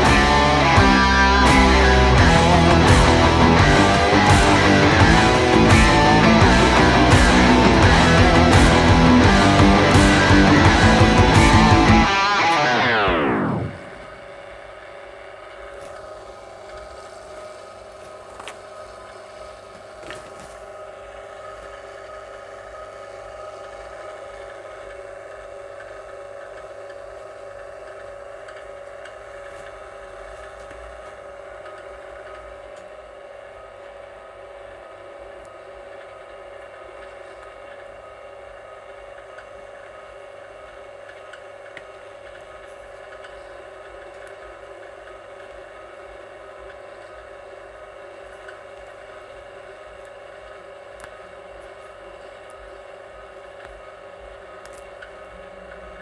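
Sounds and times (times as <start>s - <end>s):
guitar sliding down in pitch: 0.0s - 14.2s
steady electrical hum: 0.0s - 56.0s.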